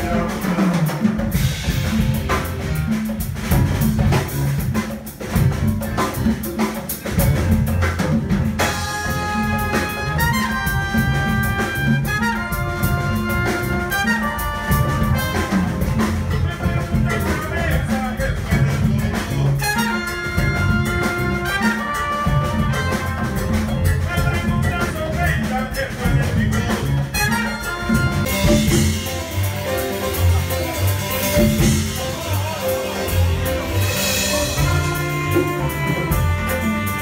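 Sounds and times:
live jazz band playing: 0:00.0 - 0:37.0
trumpet melody: 0:08.6 - 0:17.7, 0:19.3 - 0:25.4, 0:26.6 - 0:37.0
cymbals: 0:19.4 - 0:23.8, 0:27.1 - 0:37.0.

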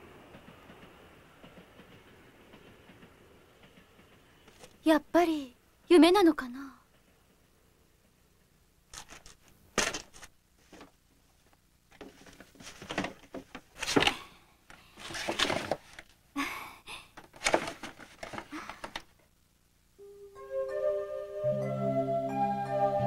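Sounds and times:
scraping rustles: 0:08.9 - 0:16.2, 0:17.2 - 0:19.1.

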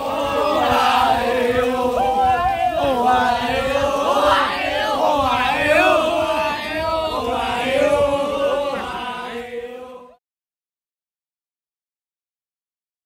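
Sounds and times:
men chanting in unison: 0:00.0 - 0:10.2.

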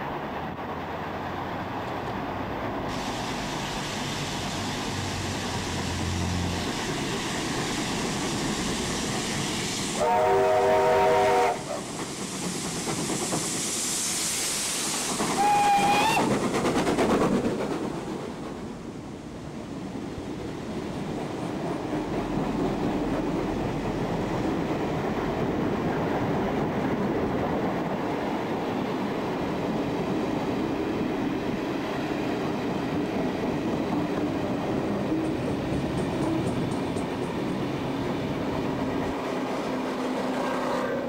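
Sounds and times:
steam locomotive passing: 0:00.0 - 0:41.0
steam whistle chord: 0:10.0 - 0:11.7
train wheels clattering: 0:10.6 - 0:18.8, 0:31.4 - 0:40.6.

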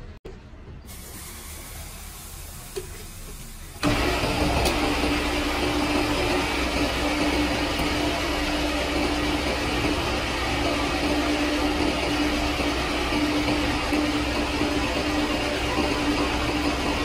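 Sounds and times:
hydraulic press pump motor running: 0:01.6 - 0:17.0.

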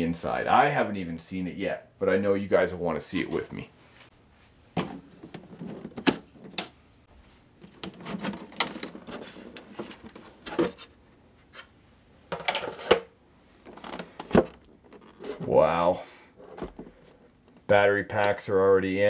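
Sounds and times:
handling rustle: 0:03.4 - 0:11.7.

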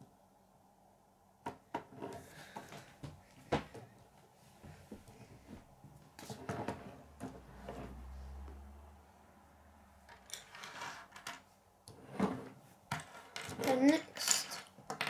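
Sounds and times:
plastic pieces clicking on table: 0:12.9 - 0:15.0.

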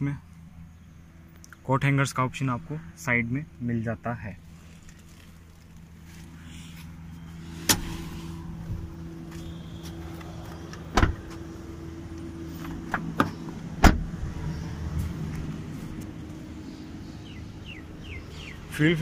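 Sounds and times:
steady low hum: 0:00.0 - 0:19.0
car door thuds: 0:07.6 - 0:08.0, 0:10.9 - 0:11.4, 0:12.7 - 0:14.2.

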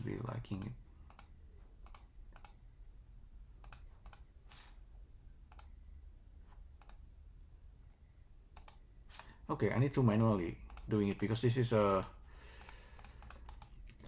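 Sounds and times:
computer mouse clicks: 0:00.5 - 0:02.6, 0:03.6 - 0:04.3, 0:05.5 - 0:05.8, 0:06.8 - 0:07.1, 0:08.5 - 0:09.3, 0:10.0 - 0:14.0.

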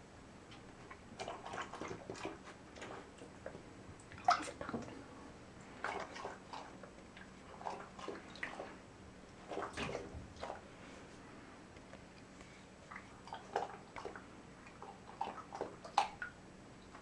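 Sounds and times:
bathwater splashing: 0:00.9 - 0:04.9, 0:05.6 - 0:10.7, 0:12.8 - 0:17.0.

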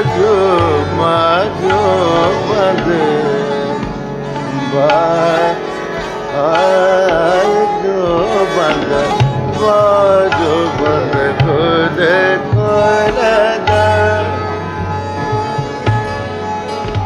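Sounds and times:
tabla playing: 0:00.0 - 0:17.0.

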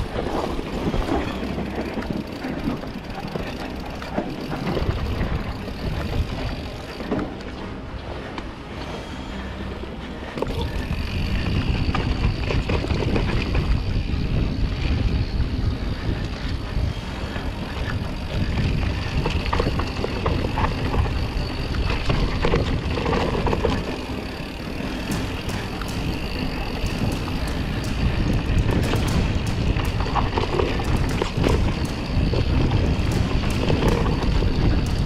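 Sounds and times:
bike rattling and knocking: 0:00.0 - 0:07.6, 0:10.4 - 0:35.0
bike tyres rumbling over dirt: 0:00.0 - 0:07.6, 0:10.3 - 0:35.0
wind on microphone: 0:10.4 - 0:35.0.

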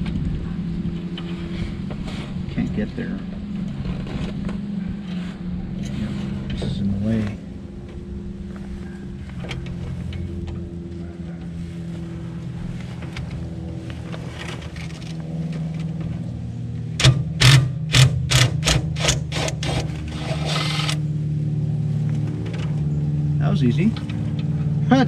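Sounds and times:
steady low hum: 0:00.0 - 0:25.0
impact wrench bursts: 0:17.0 - 0:21.0.

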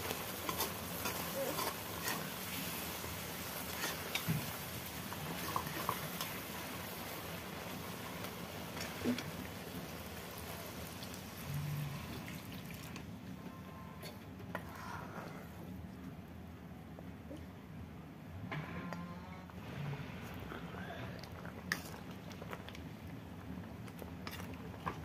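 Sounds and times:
curry sizzling in pan: 0:00.0 - 0:13.0.

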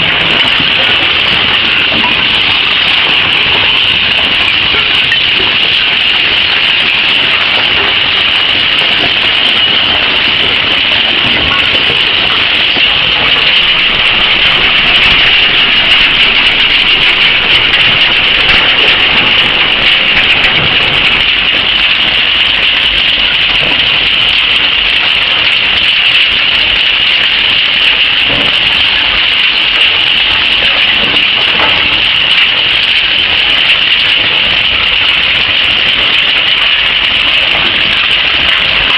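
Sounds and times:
metal shredder running: 0:00.0 - 0:38.9.

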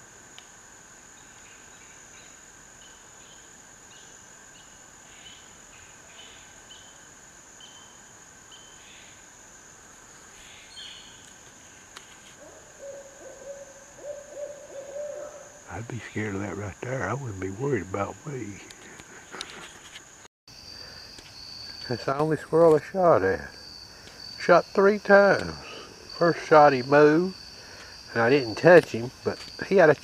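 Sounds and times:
insects droning: 0:00.0 - 0:30.0
bird chirping: 0:10.4 - 0:11.3
owl hooting: 0:12.4 - 0:15.7.

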